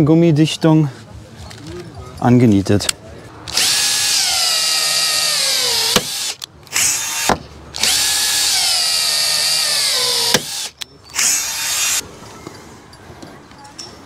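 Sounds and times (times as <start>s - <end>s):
cordless drill whining: 3.5s - 12.0s.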